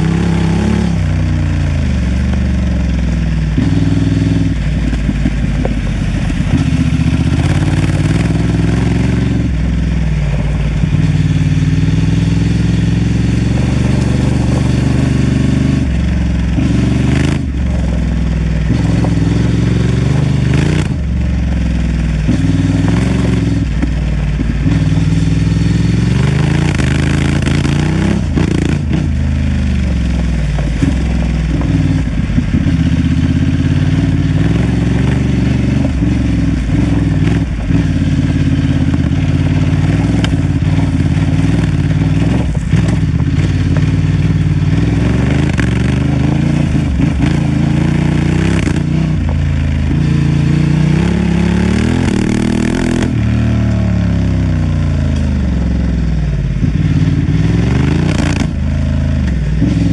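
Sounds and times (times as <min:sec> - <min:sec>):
motorcycle engine revving: 0:00.0 - 0:59.9
motorcycle knocks and clatter: 0:01.8 - 0:09.5, 0:13.0 - 0:50.2.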